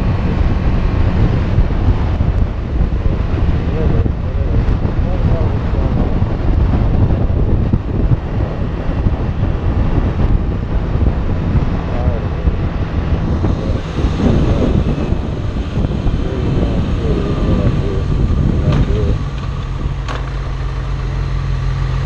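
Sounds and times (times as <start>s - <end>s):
motorcycle engine running: 0.0s - 22.0s
wind rushing over microphone: 0.0s - 22.0s.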